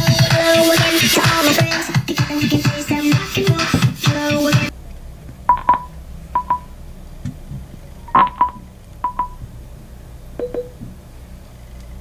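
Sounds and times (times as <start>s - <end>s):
speaker double beeps: 5.5s - 6.7s, 8.1s - 9.4s, 10.4s - 10.8s.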